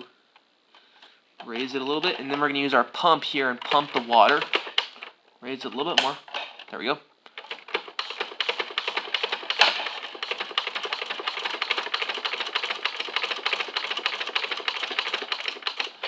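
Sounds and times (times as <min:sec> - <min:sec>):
toy mechanism clicking rapidly: 0:07.4 - 0:16.0.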